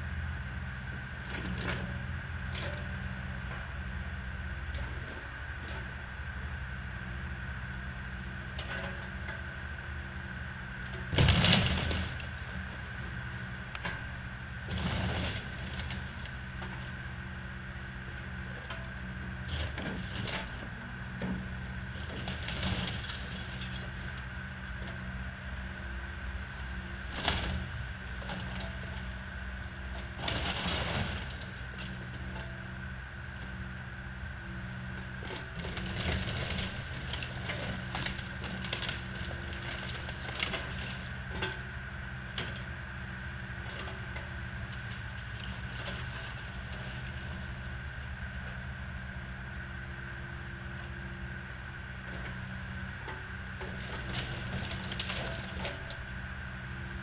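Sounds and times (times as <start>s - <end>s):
excavator engine drone: 0.0s - 57.0s
debris crashing: 11.1s - 12.3s
wood cracking and splintering: 11.1s - 12.3s.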